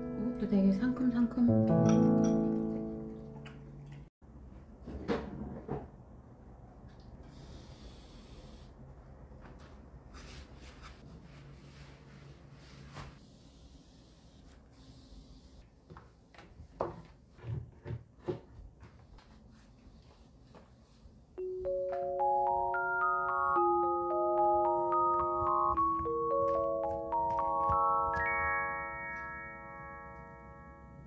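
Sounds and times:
cloth wiping countertop: 10.1 - 13.2, 16.5 - 21.3.

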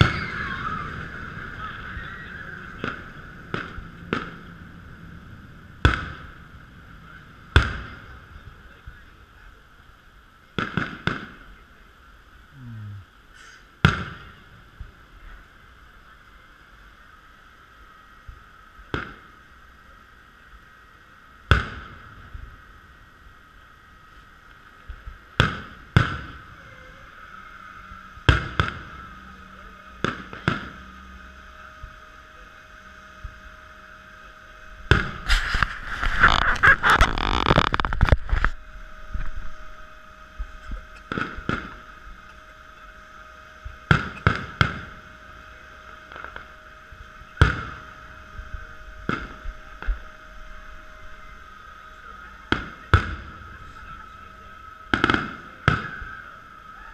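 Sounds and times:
fireworks crackling: 0.0 - 12.2, 28.2 - 30.8, 34.8 - 39.6, 40.4 - 42.3, 43.6 - 50.1, 51.1 - 56.8
firework shells bursting: 34.9 - 38.5.

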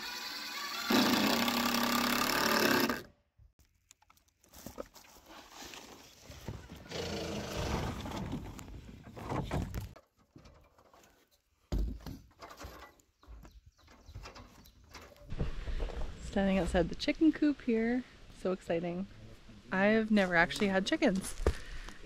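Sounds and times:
cordless drill driving screw: 0.0 - 3.1.

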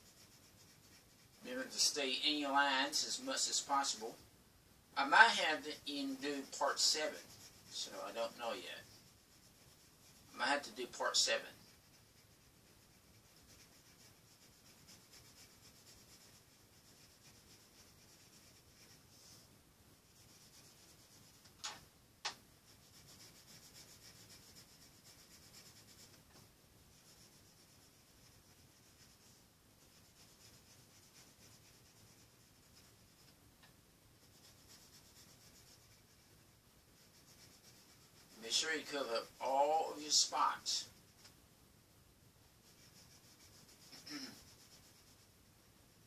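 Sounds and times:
pencil scratching on paper: 0.0 - 4.2, 5.0 - 21.6, 22.6 - 33.4, 34.2 - 41.3, 42.6 - 45.3.

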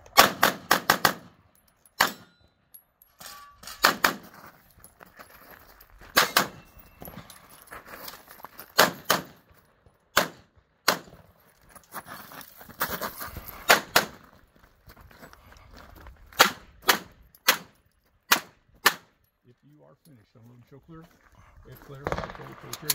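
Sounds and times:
pistol shots: 0.1 - 1.3, 2.0 - 2.3, 3.8 - 4.3, 6.2 - 6.7, 8.8 - 9.4, 10.2 - 11.2, 16.4 - 19.1, 22.0 - 22.9.

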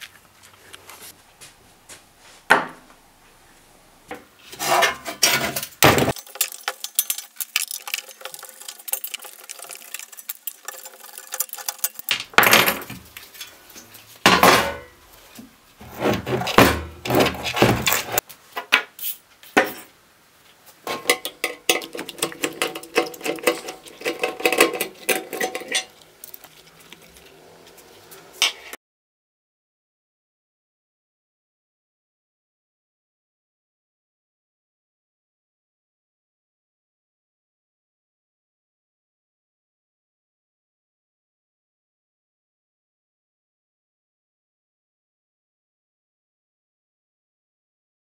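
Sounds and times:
metal parts and tools clinking on wood: 4.6 - 13.6, 20.9 - 27.2.

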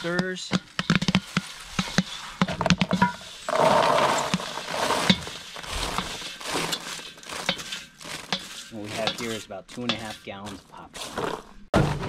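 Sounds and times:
popcorn spilling into plastic tote: 3.5 - 9.0.

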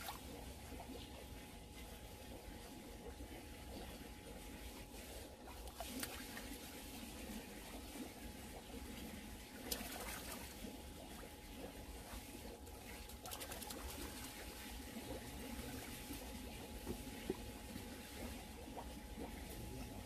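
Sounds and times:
thin steady hum: 0.0 - 20.0
water trickling: 0.0 - 20.0.

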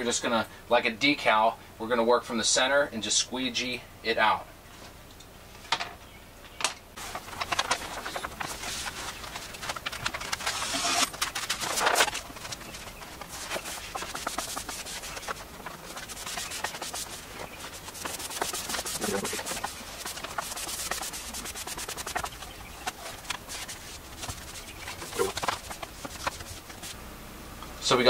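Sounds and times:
paper crinkling and rustling: 7.0 - 27.0.

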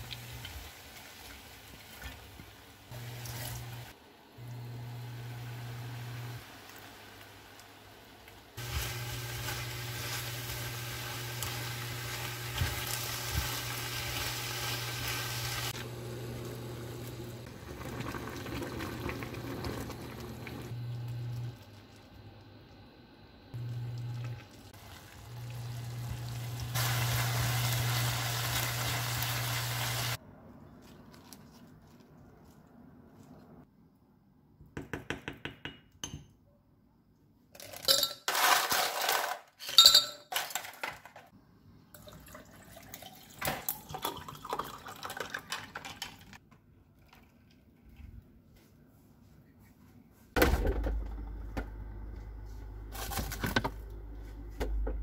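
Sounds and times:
food sizzling in frying pan: 8.6 - 20.8, 24.7 - 30.2
low hum: 50.4 - 55.0.

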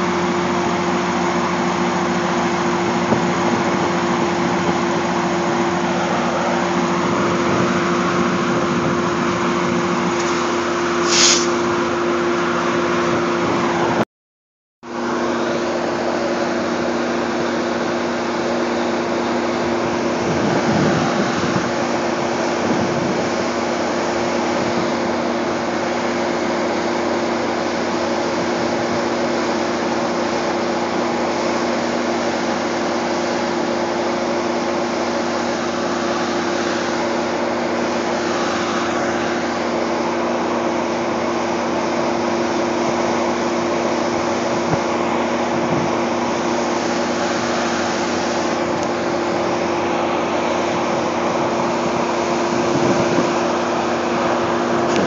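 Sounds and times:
electric train hum: 0.0 - 14.0, 14.8 - 55.0
train pulling in: 0.0 - 14.0, 14.9 - 55.0.

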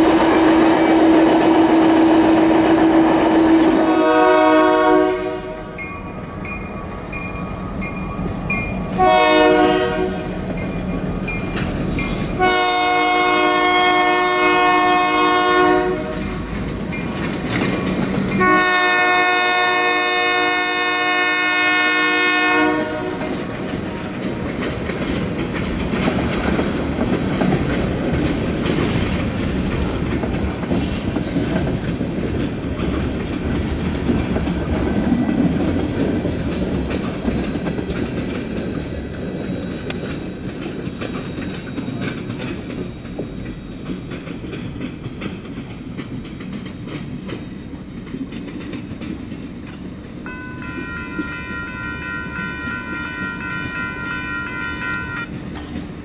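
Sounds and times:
locomotive horn chord: 0.0 - 5.8, 9.0 - 10.3, 12.4 - 16.2, 18.4 - 23.4, 50.3 - 55.3
freight train rolling on rails: 0.0 - 56.0.

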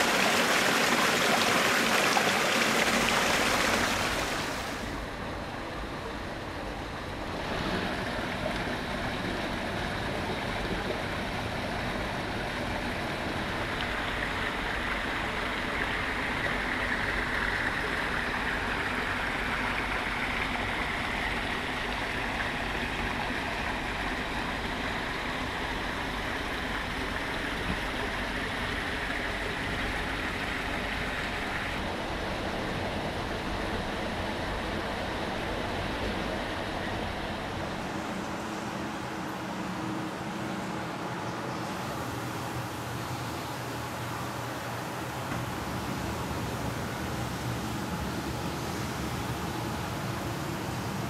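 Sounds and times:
running water splashing: 0.0 - 5.0.

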